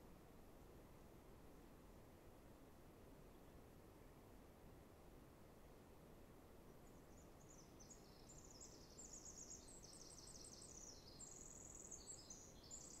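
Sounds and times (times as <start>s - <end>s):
low background hiss: 0.0s - 13.0s
birdsong trills and chirps: 7.1s - 13.0s.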